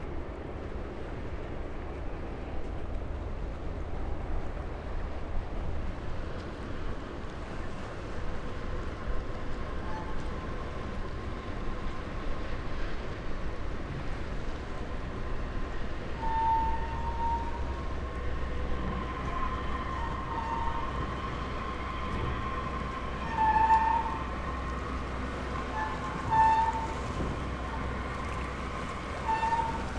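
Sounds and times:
ship engines rumbling: 0:00.0 - 0:29.9.

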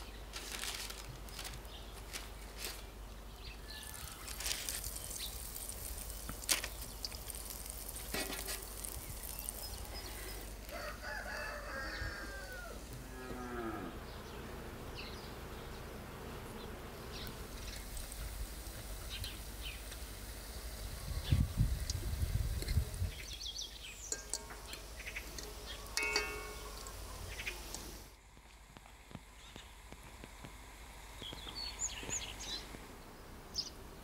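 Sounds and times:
cow mooing: 0:12.9 - 0:14.1.

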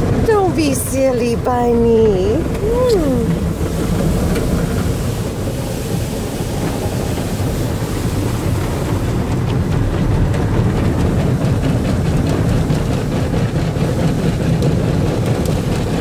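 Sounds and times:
spray water rushing: 0:00.0 - 0:16.0.

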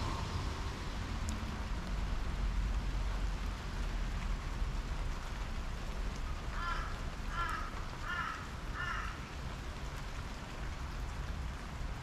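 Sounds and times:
low rumble: 0:00.0 - 0:02.4
rain pattering on table and plants: 0:00.0 - 0:12.0.

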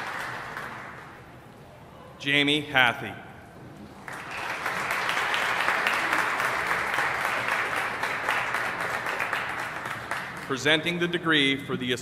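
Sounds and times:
audience applauding: 0:00.0 - 0:01.2, 0:03.9 - 0:11.1.

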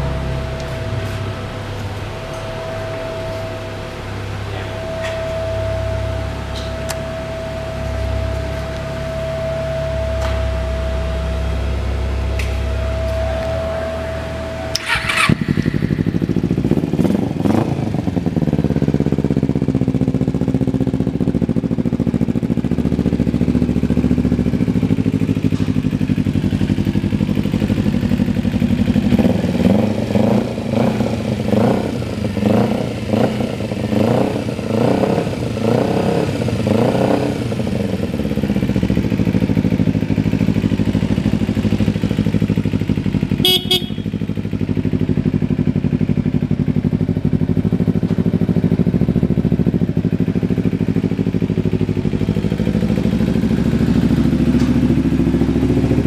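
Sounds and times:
motorcycle engine idling: 0:00.0 - 0:56.0
motorcycle throttle revs: 0:12.3 - 0:19.7, 0:24.6 - 0:56.0.

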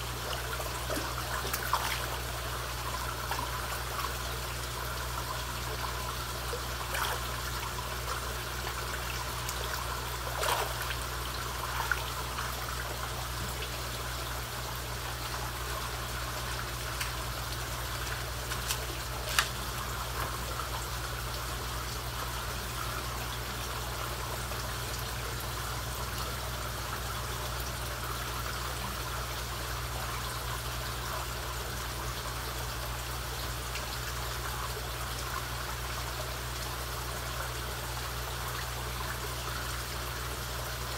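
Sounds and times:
low steady hum: 0:00.0 - 0:40.9
pond water trickling and lapping: 0:00.0 - 0:40.9
fish splashing at surface: 0:00.8 - 0:02.4, 0:10.2 - 0:12.0, 0:18.0 - 0:19.7.

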